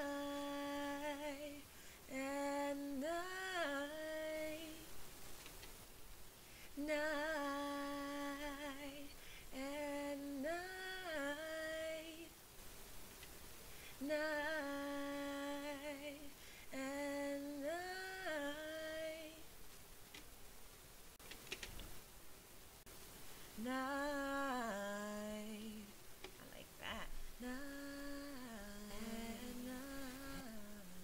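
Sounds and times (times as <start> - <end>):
woman singing a cappella: 0.0 - 5.0, 6.7 - 12.4, 13.9 - 19.5, 23.5 - 31.0
faint clicks: 5.3 - 5.8, 13.1 - 13.4, 19.7 - 20.4, 21.2 - 22.0, 26.2 - 26.5.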